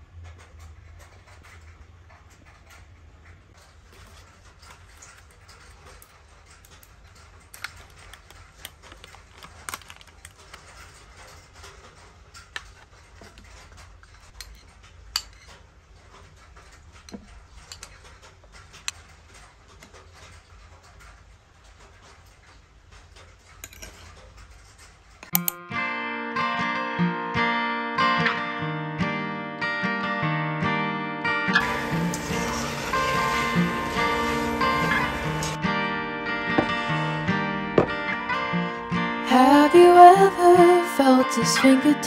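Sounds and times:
spoon scraping ceramic bowl: 0:31.6 - 0:35.6.

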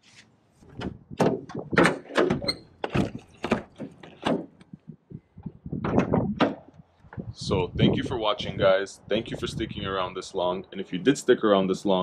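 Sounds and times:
rubber hood latches clacking: 0:00.7 - 0:04.8.

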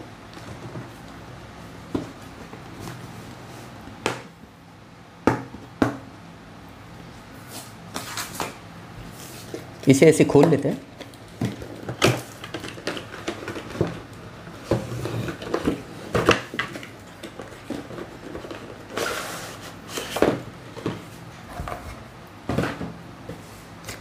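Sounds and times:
cardboard box rustling and scraping: 0:13.3 - 0:22.0.

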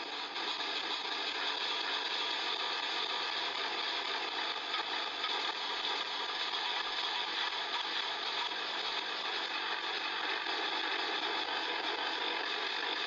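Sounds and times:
wood chipper running: 0:00.0 - 0:13.0.

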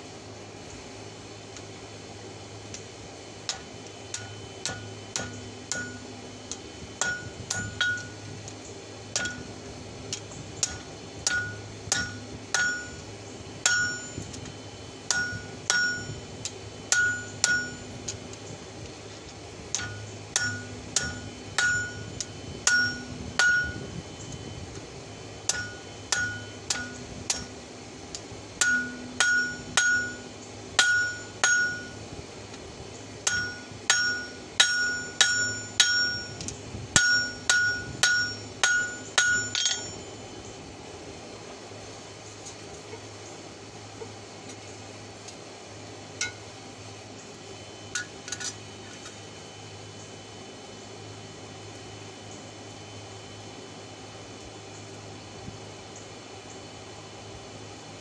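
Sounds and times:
hammer ringing on anvil: 0:03.5 - 0:06.1, 0:07.0 - 0:08.2, 0:09.1 - 0:09.5, 0:10.6 - 0:13.0, 0:13.6 - 0:14.3, 0:15.1 - 0:16.2, 0:16.9 - 0:18.0, 0:19.7 - 0:23.8, 0:25.5 - 0:27.5, 0:28.6 - 0:32.0, 0:33.2 - 0:36.4, 0:37.0 - 0:40.2.

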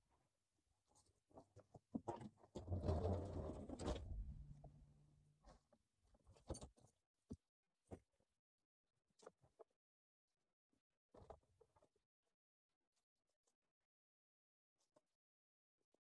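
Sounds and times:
short low hum: 0:02.7 - 0:05.3.

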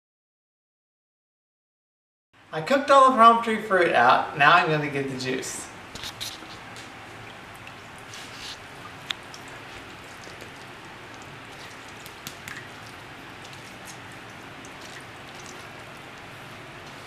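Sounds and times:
wet squishing and pattering: 0:06.0 - 0:17.0.

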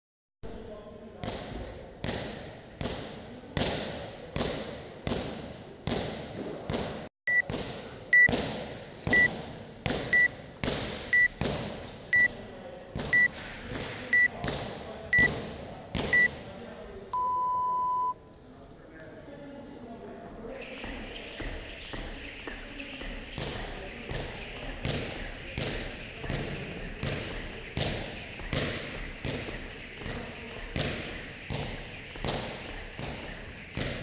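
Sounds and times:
short high timer beeps: 0:10.1 - 0:10.3, 0:13.1 - 0:13.3, 0:17.2 - 0:18.2.

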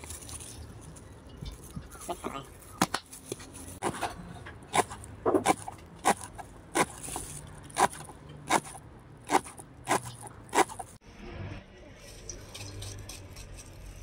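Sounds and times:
knife chopping on wooden board: 0:04.7 - 0:10.9.

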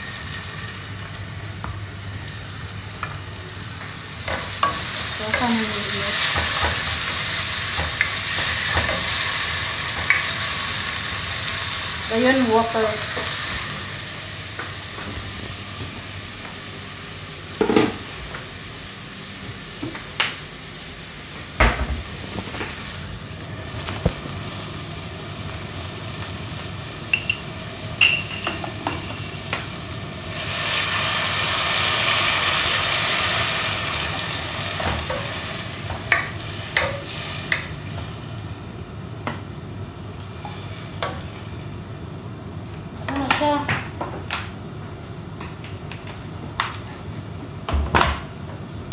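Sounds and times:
food sizzling in oil: 0:00.0 - 0:19.8, 0:22.0 - 0:38.5.

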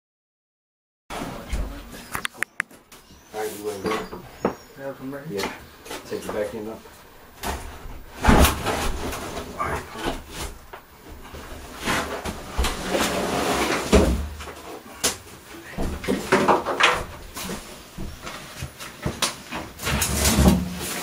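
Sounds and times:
bathtub scraping and rubbing: 0:07.4 - 0:21.0.

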